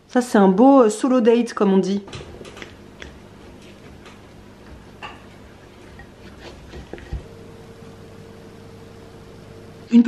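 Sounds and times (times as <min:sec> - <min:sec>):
low steady hum: 0:00.0 - 0:10.0
knife scrape: 0:05.8 - 0:07.3.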